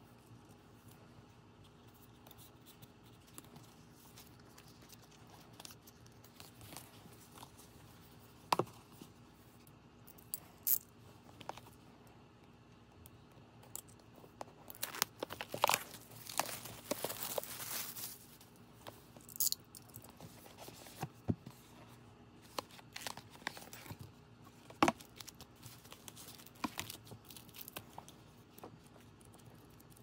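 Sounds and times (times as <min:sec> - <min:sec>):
paper and card handling: 0:00.1 - 0:09.6, 0:14.0 - 0:19.3, 0:20.0 - 0:30.0
plastic shrink wrap tearing: 0:14.7 - 0:18.4.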